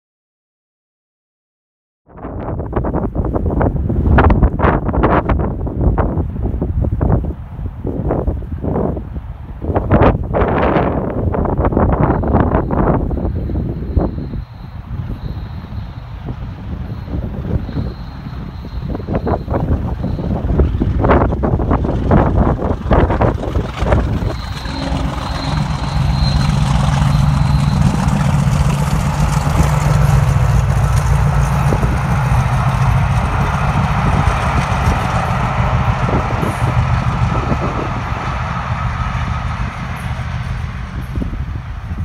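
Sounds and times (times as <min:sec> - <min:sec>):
wind buffeting microphone: 0:02.1 - 0:42.0
diesel locomotive engine drone: 0:02.2 - 0:42.0
high train whistle: 0:11.8 - 0:20.6, 0:23.8 - 0:41.8.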